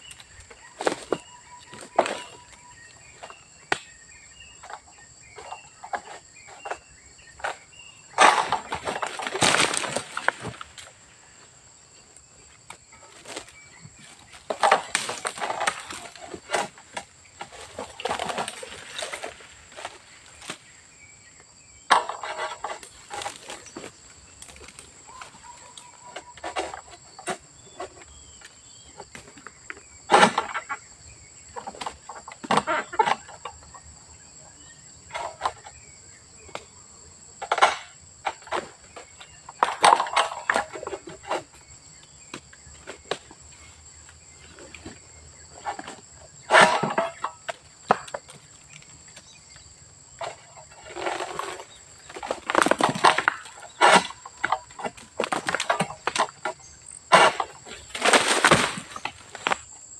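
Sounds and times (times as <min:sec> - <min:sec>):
sickle hacking palm fronds: 0:00.1 - 0:03.9, 0:07.4 - 0:11.0, 0:13.0 - 0:20.8, 0:21.9 - 0:28.5, 0:50.2 - 0:59.7.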